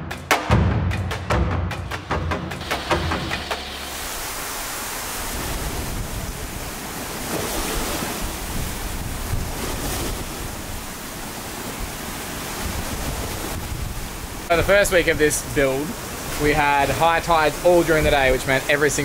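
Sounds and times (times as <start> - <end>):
percussion beats: 0.0 - 4.3
wind: 0.0 - 19.0
choppy sea surf: 2.0 - 19.0
rain: 2.6 - 19.0.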